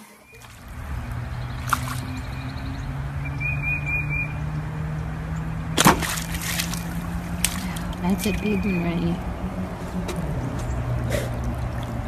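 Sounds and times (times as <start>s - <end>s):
dog splashing in water: 0.3s - 3.2s, 5.8s - 8.5s.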